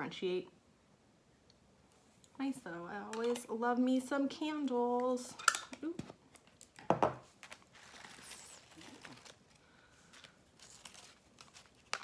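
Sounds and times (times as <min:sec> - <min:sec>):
packaging rustling and crinkling: 0:06.3 - 0:12.0.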